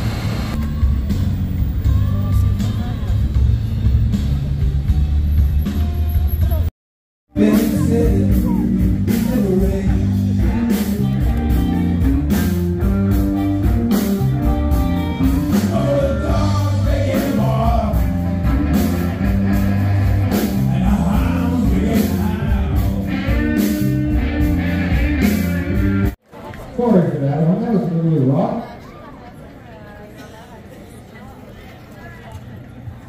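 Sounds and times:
rock band playing: 0.8 - 6.7, 7.3 - 26.2
person singing: 7.3 - 11.7, 15.4 - 23.7.

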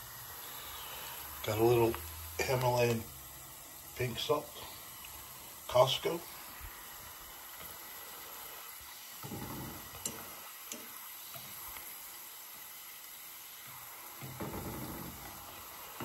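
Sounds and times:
garlic sizzling in oil: 0.0 - 16.0
chopsticks ticking against a pan: 10.0 - 11.0.

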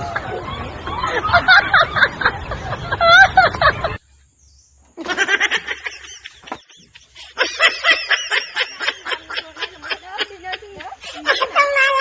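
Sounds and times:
girl talking and giggling: 5.0 - 12.0.

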